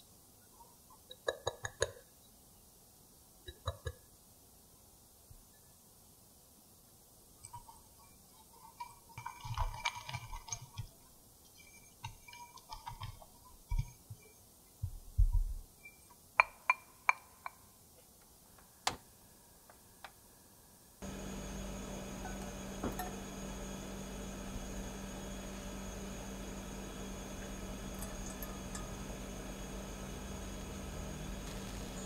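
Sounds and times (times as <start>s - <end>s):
whisk scraping in glass bowl: 7.5s - 14.4s
whisk tapping on glass: 11.8s - 14.0s
gas burner hiss: 21.0s - 32.0s.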